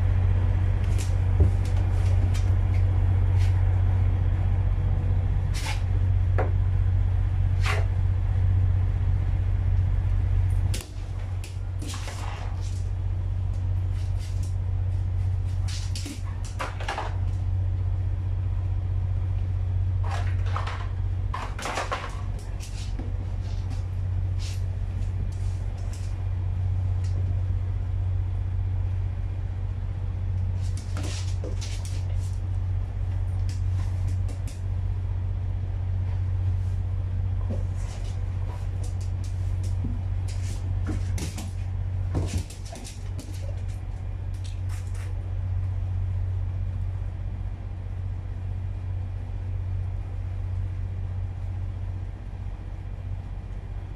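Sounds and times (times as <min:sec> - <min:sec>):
steady low hum: 0:00.0 - 0:53.9
dog claws on hard floor: 0:10.7 - 0:12.9, 0:15.5 - 0:17.4, 0:20.0 - 0:23.8, 0:30.6 - 0:32.4, 0:37.5 - 0:45.2
dog pawing at bed: 0:37.4 - 0:43.7.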